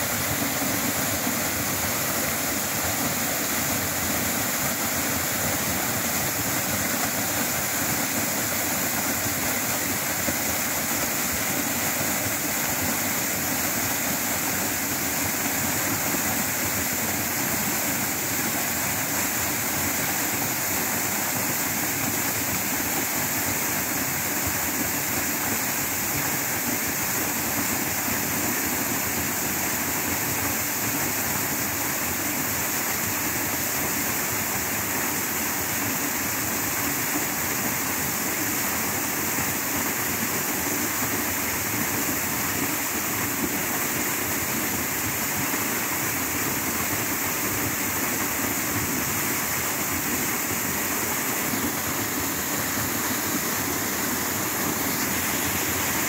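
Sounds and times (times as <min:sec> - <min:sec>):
waterfall rushing onto rocks: 0:00.0 - 0:56.0.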